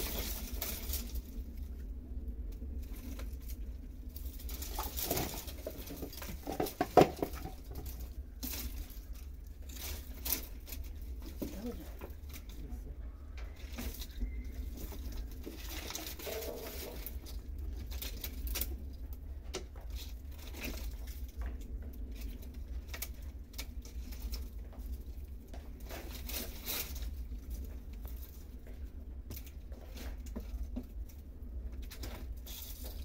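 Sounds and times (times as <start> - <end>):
dry twigs snapping and rustling: 0.0 - 1.9, 2.5 - 12.7, 13.4 - 33.0.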